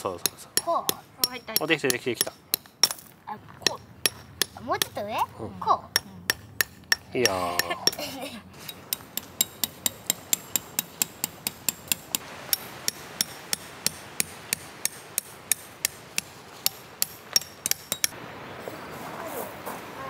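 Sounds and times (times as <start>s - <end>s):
hammer striking tent pegs: 8.7s - 18.2s.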